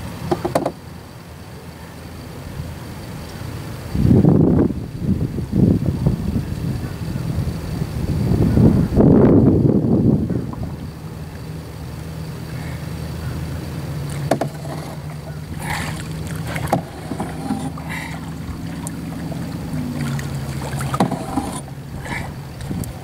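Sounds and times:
steady low hum: 0.0s - 23.0s
paddle knocks: 0.3s - 0.8s, 14.0s - 23.0s
paddle blades splashing: 10.5s - 23.0s.

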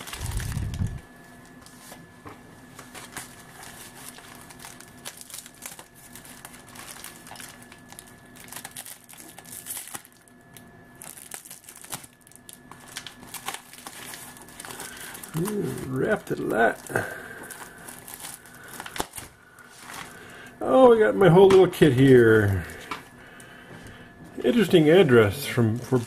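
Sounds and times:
packing wrap and tape crinkling: 0.0s - 2.0s, 2.7s - 20.4s, 25.5s - 26.0s.

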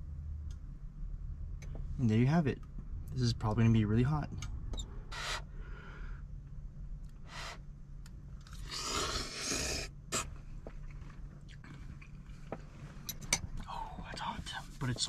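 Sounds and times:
low hum: 0.0s - 15.0s
person slurping noodles: 8.6s - 10.3s.

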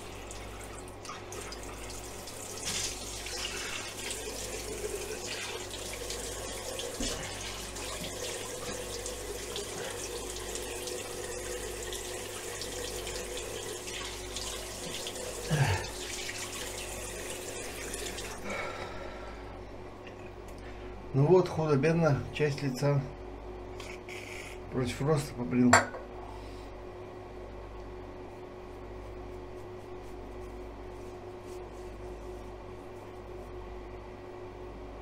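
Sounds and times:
low steady hum: 0.0s - 35.0s.

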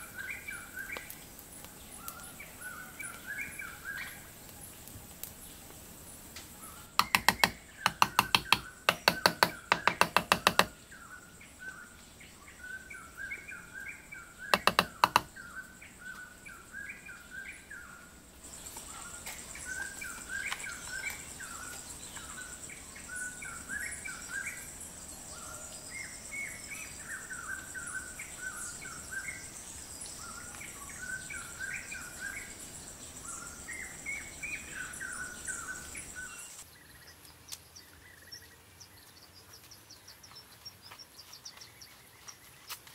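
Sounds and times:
high insect drone: 0.0s - 36.7s
small birds chirping: 0.0s - 42.9s
rapid sharp knocks: 7.0s - 10.7s, 14.5s - 15.3s.

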